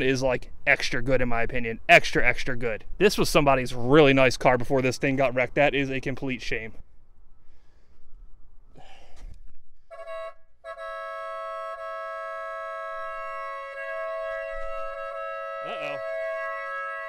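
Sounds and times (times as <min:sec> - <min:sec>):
car horn blaring: 0:09.9 - 0:17.0.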